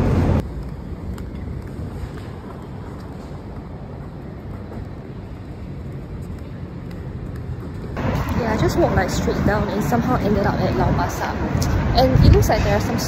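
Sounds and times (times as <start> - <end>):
low rumble of traffic: 0.0 - 13.0
wind on microphone: 4.8 - 13.0.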